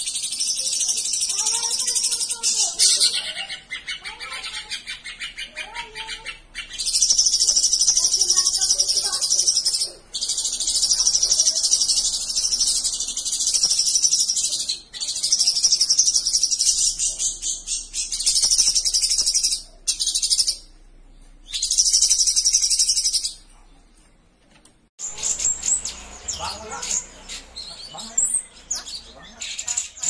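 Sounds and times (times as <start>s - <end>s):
bird twittering song: 0.0s - 23.7s, 25.0s - 30.0s.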